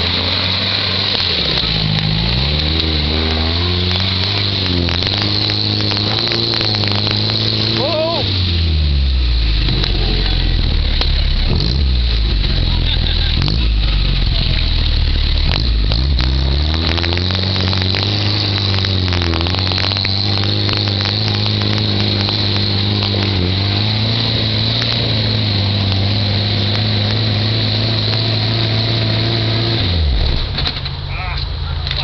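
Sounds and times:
jeep engine under load: 0.0s - 32.0s.

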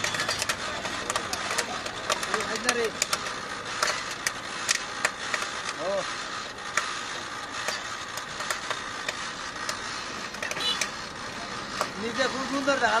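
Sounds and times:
sharp clicks: 0.0s - 5.9s, 7.6s - 11.0s
popcorn machine hissing: 0.0s - 13.0s.

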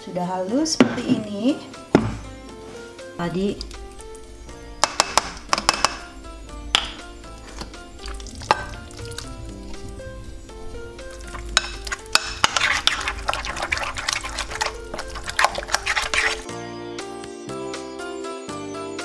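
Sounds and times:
light background music: 0.0s - 19.0s
metal spoon scraping bowl: 11.2s - 16.5s.

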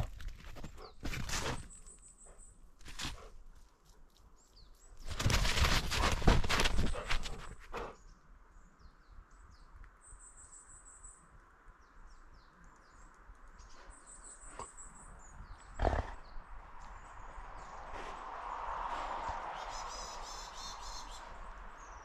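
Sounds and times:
rustling against camera: 0.0s - 1.8s, 5.0s - 7.8s
small birds chirping: 0.0s - 22.0s.

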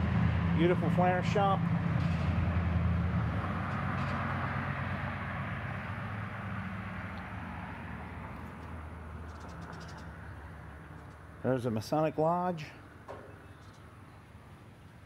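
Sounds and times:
vehicle driving away: 0.0s - 11.5s.

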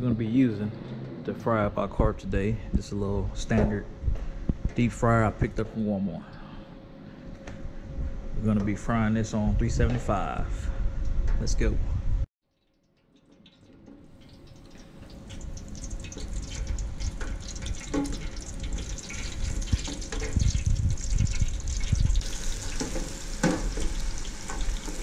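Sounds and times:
fish deep-frying in oil: 12.5s - 25.0s.

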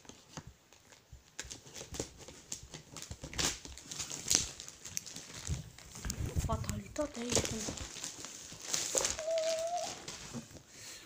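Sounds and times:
packaging rustling and crinkling: 0.0s - 10.7s.

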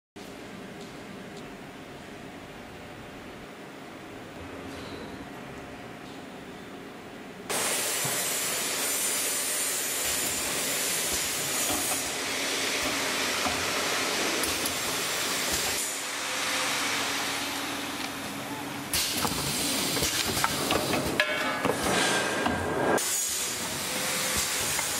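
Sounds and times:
loud steady machine hiss: 7.5s - 21.0s, 22.8s - 24.9s.

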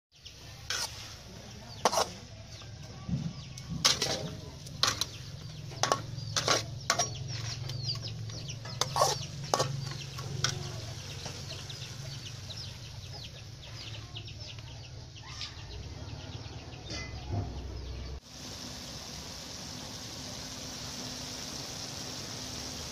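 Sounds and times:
food crackling in a wok: 0.3s - 2.3s, 3.8s - 13.7s, 18.2s - 22.9s
metal spatula scraping a wok: 0.5s - 2.3s, 3.8s - 12.1s.

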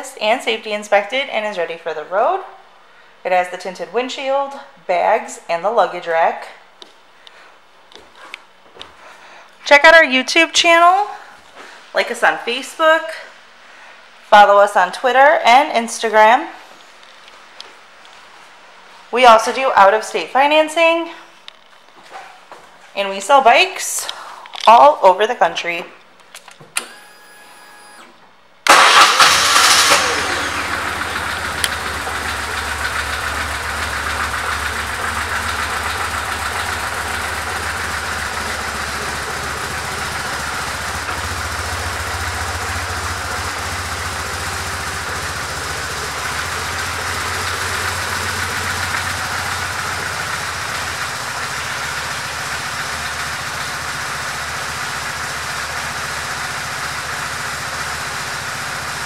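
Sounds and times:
motorcycle engine starting and idling: 26.4s - 59.0s.

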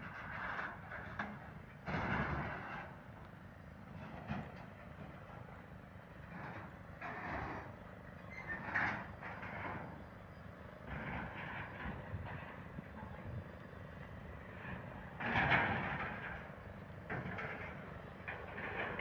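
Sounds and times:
construction machinery rumble: 0.0s - 19.0s.

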